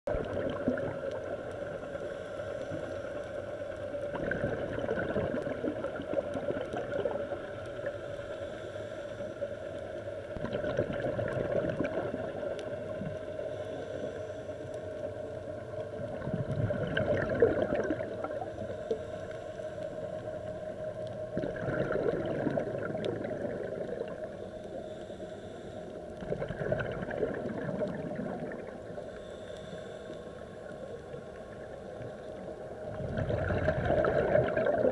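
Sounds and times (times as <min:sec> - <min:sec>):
exhaled bubbles gurgling: 0:00.1 - 0:01.9, 0:03.8 - 0:07.9, 0:10.3 - 0:13.3, 0:15.6 - 0:18.7, 0:21.0 - 0:24.4, 0:26.1 - 0:29.0, 0:31.5 - 0:34.9
scuba diver breathing underwater: 0:13.4 - 0:14.9, 0:21.4 - 0:30.9.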